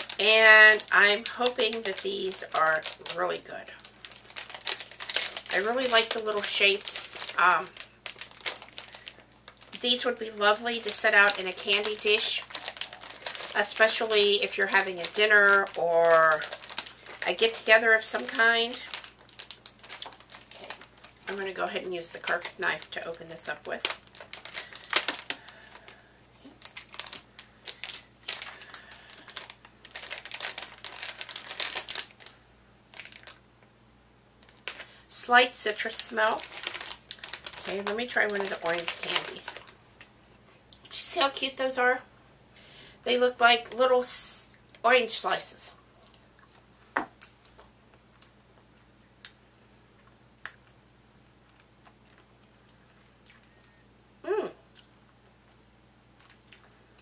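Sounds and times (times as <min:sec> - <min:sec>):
plastic bag crinkling: 0:00.0 - 0:33.4, 0:34.4 - 0:40.1, 0:51.4 - 0:53.5, 0:56.2 - 0:57.0.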